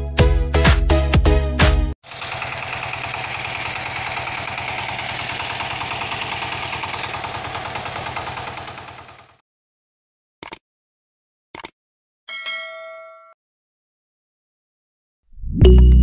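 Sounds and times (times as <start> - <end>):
toy electric motor buzzing: 2.0 - 8.0.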